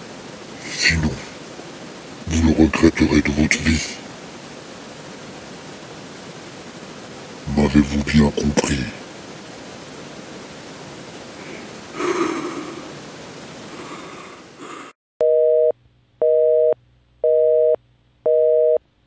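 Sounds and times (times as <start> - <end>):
steady hiss: 0.0 - 15.0
telephone busy signal: 15.2 - 18.8.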